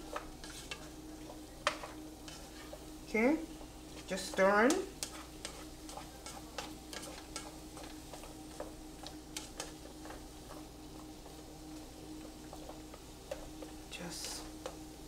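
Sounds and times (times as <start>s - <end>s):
spatula scraping a frying pan: 0.0s - 1.0s, 1.7s - 2.9s, 3.8s - 11.1s
faint sizzle of food sauteing: 0.0s - 15.0s
faint steady hum: 0.0s - 15.0s.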